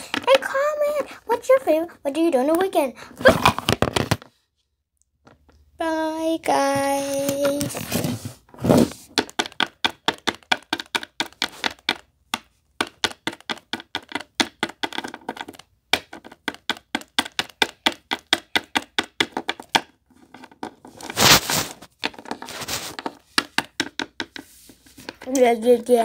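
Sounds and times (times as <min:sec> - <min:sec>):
fingers tapping on camera: 0:09.2 - 0:19.8
rubbing on camera: 0:20.2 - 0:23.3.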